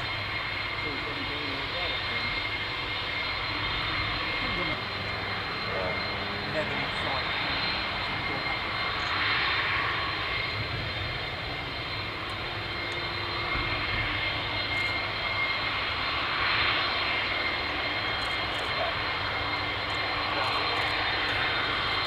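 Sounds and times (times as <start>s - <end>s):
high-pitched engine whine: 0.0s - 22.0s
jet engines taxiing: 0.0s - 22.0s.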